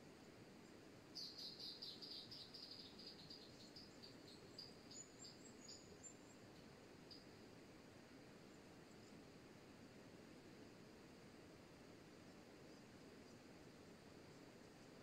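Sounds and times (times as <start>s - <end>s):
small bird chirping: 1.2s - 7.3s.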